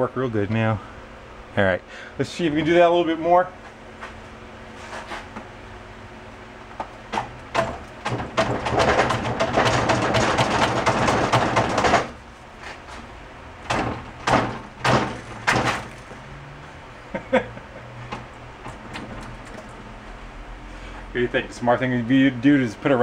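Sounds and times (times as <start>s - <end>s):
knocks: 7.1s - 12.2s, 13.7s - 15.9s
rapid clicking and rattling: 7.1s - 12.2s.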